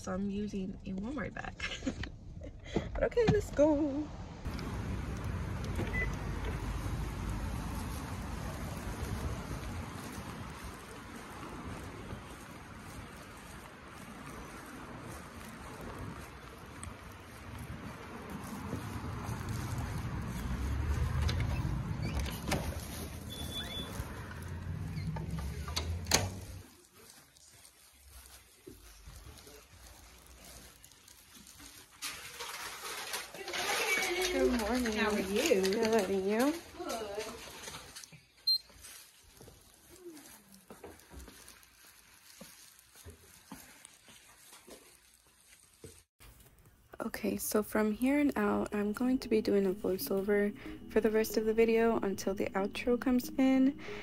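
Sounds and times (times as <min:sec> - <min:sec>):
wind rumbling on microphone: 0:04.4 - 0:26.6
door clicks: 0:25.2 - 0:26.4.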